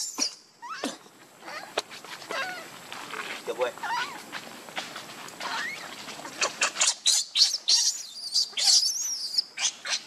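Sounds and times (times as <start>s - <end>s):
baby monkey screaming: 0.0s - 1.7s, 3.8s - 4.2s, 5.4s - 10.0s.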